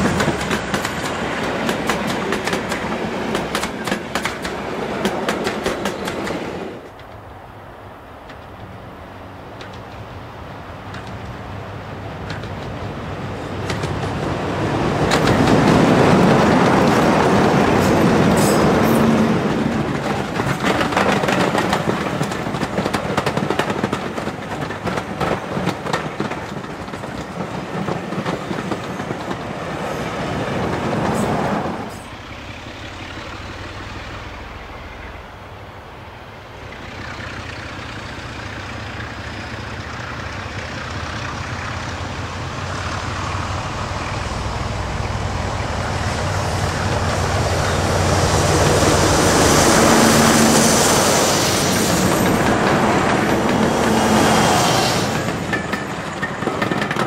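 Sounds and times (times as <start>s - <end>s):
wheels clicking over rail joints: 0.0s - 7.4s, 8.0s - 35.3s, 36.6s - 57.0s
diesel locomotive engine drone: 0.0s - 57.0s
distant locomotive engine: 0.0s - 57.0s.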